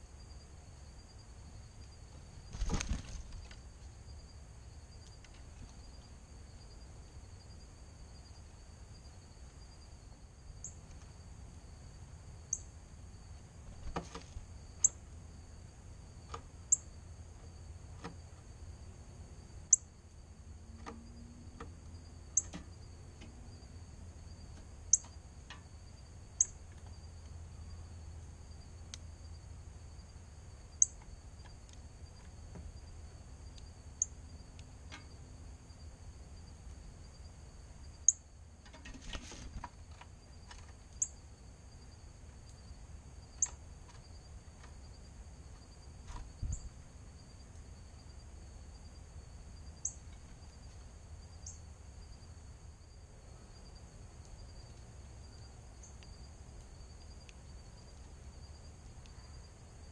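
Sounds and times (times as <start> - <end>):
high-pitched insect trill: 40.2 - 44.3, 46.4 - 59.9.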